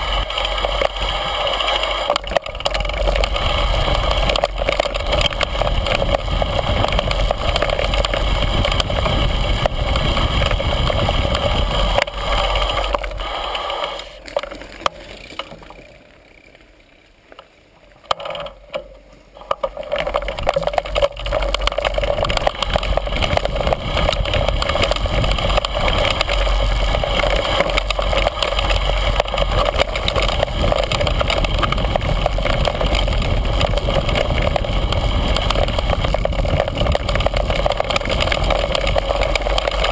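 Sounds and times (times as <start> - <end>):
bike rattling over stones: 0.0 - 39.9
wind rush on microphone: 2.2 - 13.5, 20.2 - 39.9.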